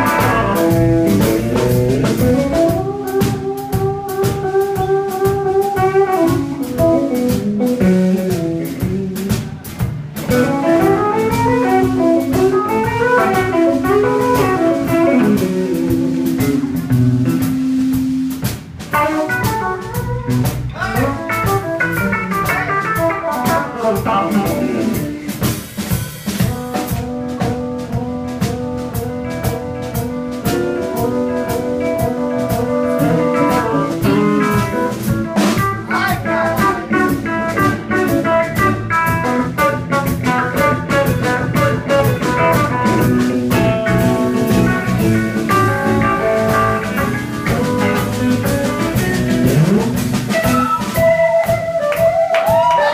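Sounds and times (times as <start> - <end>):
bass guitar: 0.0 - 52.9
drum kit: 0.0 - 52.9
electric guitar runs: 39.9 - 52.3.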